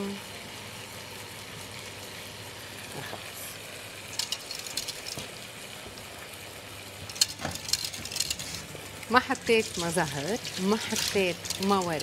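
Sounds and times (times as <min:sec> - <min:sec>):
whisk scraping metal pot: 0:07.1 - 0:08.7, 0:09.4 - 0:12.0.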